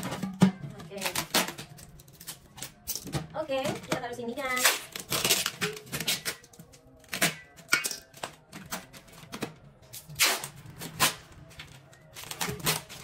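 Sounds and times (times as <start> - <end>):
packing tape ripping off roll: 4.5 - 9.0, 9.9 - 11.4, 12.1 - 13.0.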